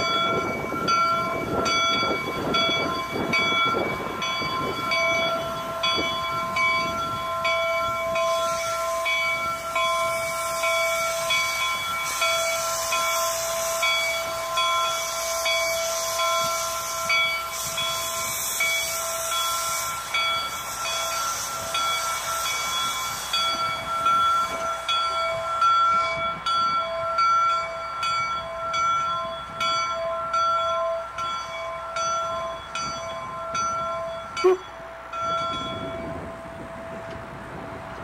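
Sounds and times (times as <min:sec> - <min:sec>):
wheels clicking on rail joints: 0:00.0 - 0:38.0
train whistle chord: 0:34.4 - 0:35.0.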